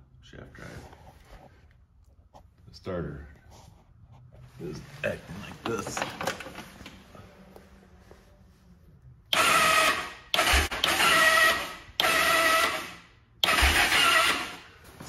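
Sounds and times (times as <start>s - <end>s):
electric starter motor whirring: 9.3s - 14.7s.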